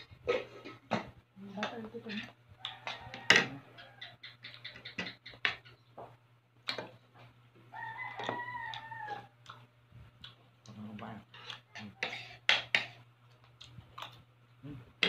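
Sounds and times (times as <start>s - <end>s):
rooster crowing: 2.6s - 4.3s, 7.7s - 9.4s.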